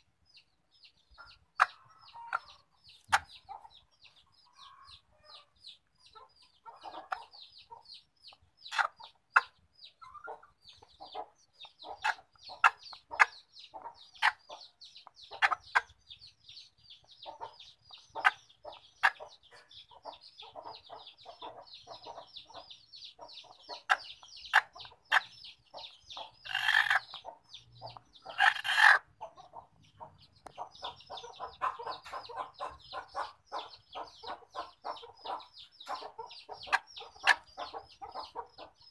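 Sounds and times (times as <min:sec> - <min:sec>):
chickens clucking: 0:00.0 - 0:38.9
loud long chicken calls: 0:28.4 - 0:29.1.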